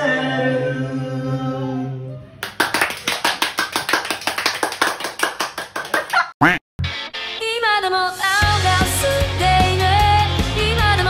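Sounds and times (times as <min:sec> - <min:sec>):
rapid hand clapping: 0:02.4 - 0:06.2.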